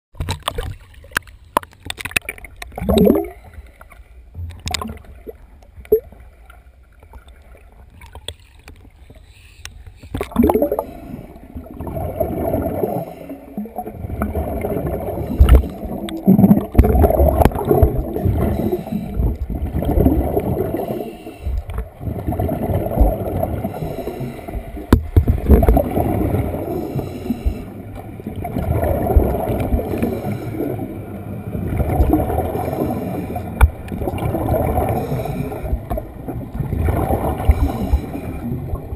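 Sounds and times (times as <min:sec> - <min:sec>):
underwater air bubbling and rushing: 0:00.1 - 0:38.9
knocks underwater: 0:15.4 - 0:18.4, 0:24.9 - 0:26.5, 0:28.4 - 0:30.1, 0:33.6 - 0:34.8.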